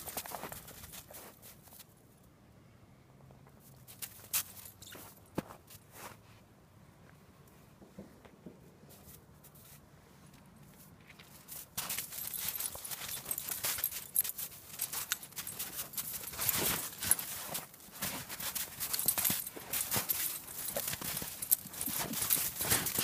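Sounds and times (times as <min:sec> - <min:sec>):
dog paws crunching in snow: 0:00.0 - 0:01.9, 0:10.7 - 0:23.0.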